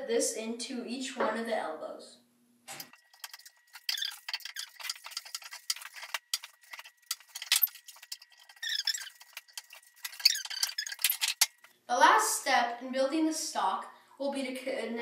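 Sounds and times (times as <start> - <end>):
plastic fittings clicking and scraping: 2.7 - 11.7.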